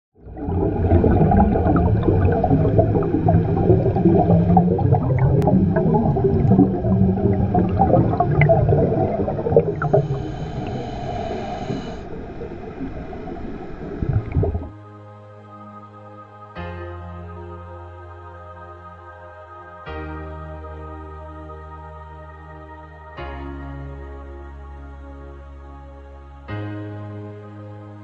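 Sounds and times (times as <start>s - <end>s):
bubbling and crackling pops: 0.2s - 10.2s, 12.2s - 14.7s
underwater rumble: 0.2s - 14.7s.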